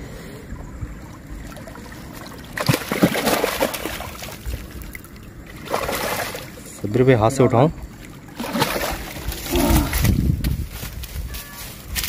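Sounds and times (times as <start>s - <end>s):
fish splashing in water: 1.4s - 6.7s, 8.1s - 10.1s.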